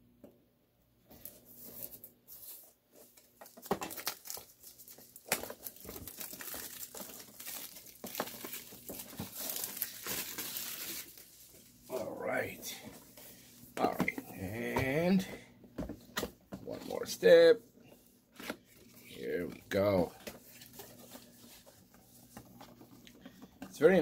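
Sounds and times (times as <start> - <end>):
plastic wrap tearing and crinkling: 3.1 - 11.8.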